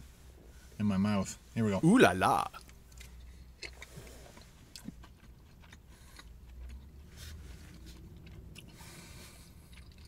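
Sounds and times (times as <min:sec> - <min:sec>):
person chewing food: 0:02.6 - 0:10.0.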